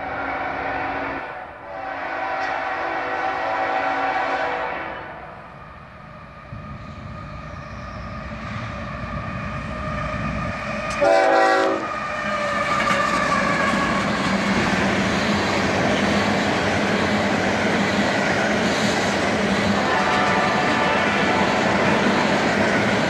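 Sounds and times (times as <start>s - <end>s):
locomotive horn blast: 0.0s - 5.4s, 10.9s - 12.0s, 19.8s - 21.9s
diesel train engines: 0.0s - 23.0s
train wheels on rails: 0.0s - 23.0s.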